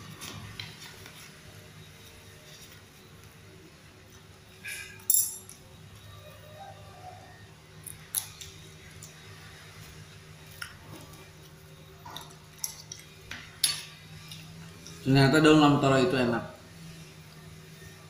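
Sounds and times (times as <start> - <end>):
metal spoon clinking on table: 5.0 - 5.6.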